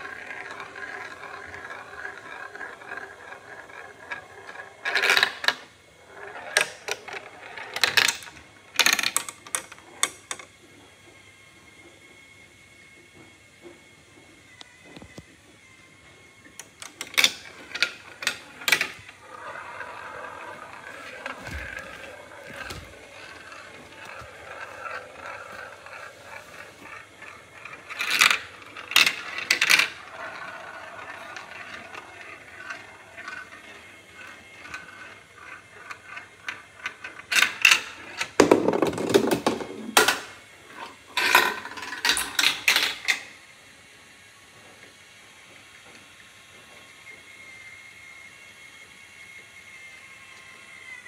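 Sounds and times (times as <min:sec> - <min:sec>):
marbles clicking on plastic: 0:00.0 - 0:10.5, 0:16.6 - 0:43.2
marbles rolling along plastic track: 0:00.0 - 0:11.2, 0:16.0 - 0:43.4.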